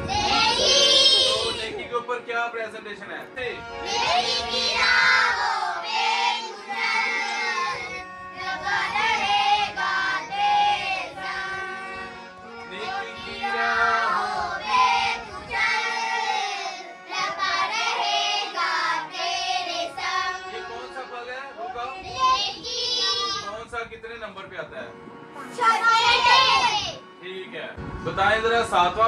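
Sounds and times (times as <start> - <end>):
boys singing: 3.8 - 21.2
girls singing: 3.9 - 20.8.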